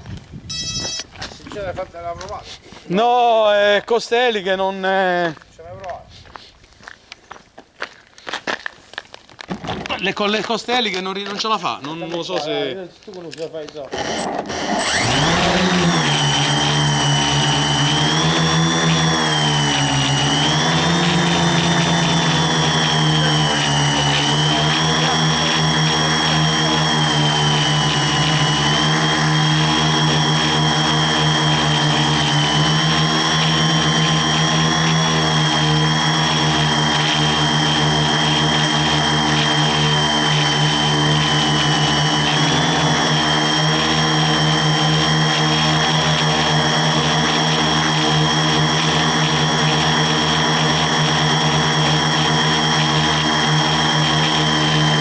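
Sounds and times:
drone propellers buzzing: 0:00.5 - 0:01.2, 0:13.9 - 0:55.0.

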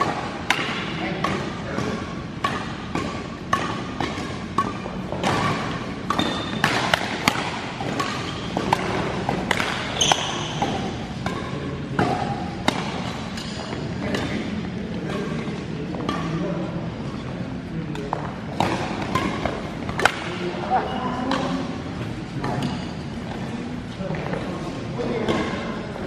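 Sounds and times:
rackets hitting shuttlecock: 0:00.0 - 0:16.6, 0:17.9 - 0:23.5, 0:25.0 - 0:25.8
shoe squeaks on court floor: 0:10.0 - 0:10.6.

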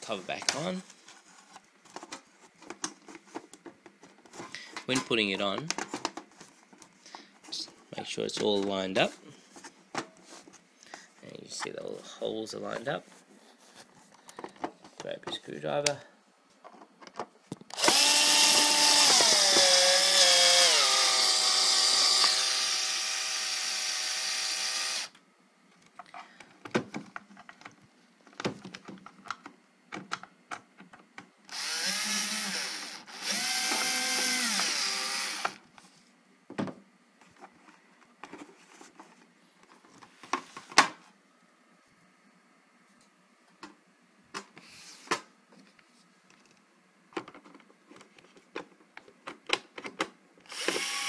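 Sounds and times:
power screwdriver motor whining: 0:17.8 - 0:25.1, 0:31.5 - 0:35.6, 0:50.5 - 0:51.0.

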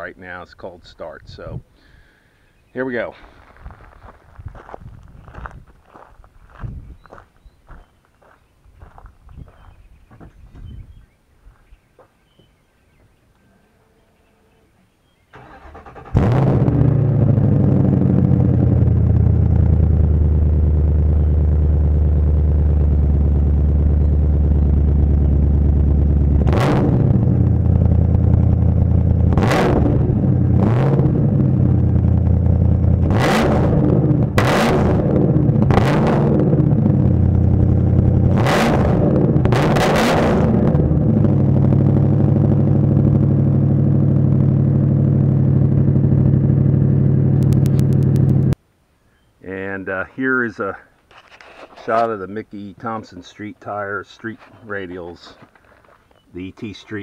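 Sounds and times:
car engine idling and revving: 0:15.4 - 0:48.6.

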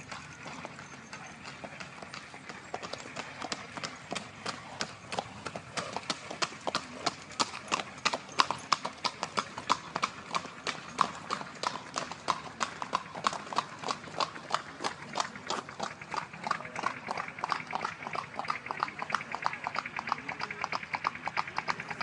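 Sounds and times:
hooves clip-clopping on asphalt: 0:00.0 - 0:22.0.

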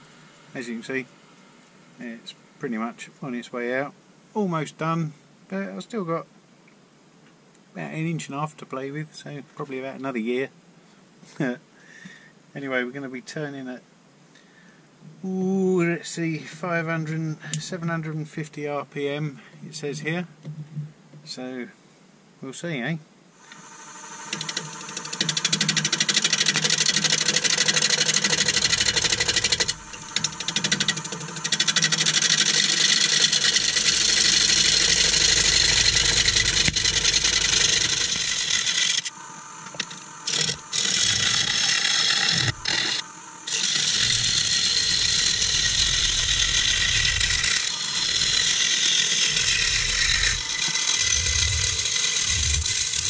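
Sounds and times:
gouge cutting wood on lathe: 0:23.4 - 0:53.0
lathe motor hum: 0:23.4 - 0:53.0.

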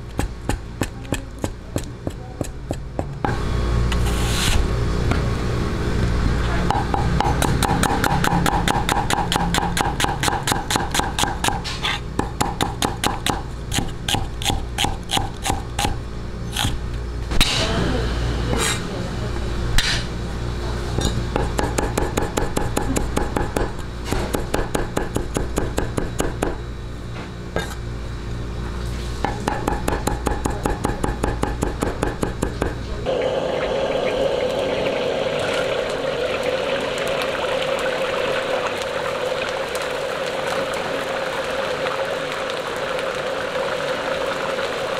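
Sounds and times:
chicken deep-frying in oil: 0:33.0 - 0:44.9.

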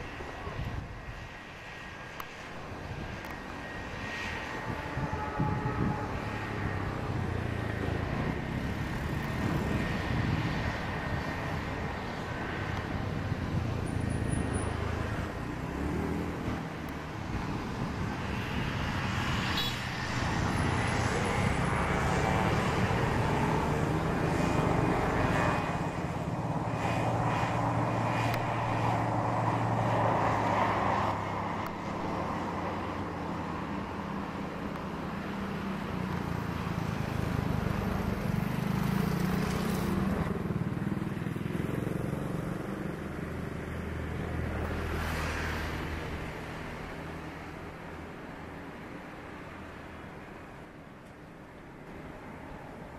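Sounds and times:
turboprop engine drone: 0:00.0 - 0:38.6.

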